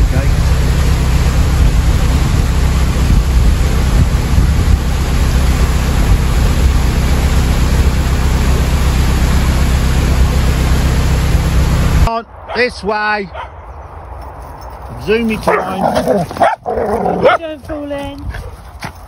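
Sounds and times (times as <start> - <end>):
boat engine droning: 0.0 - 12.1.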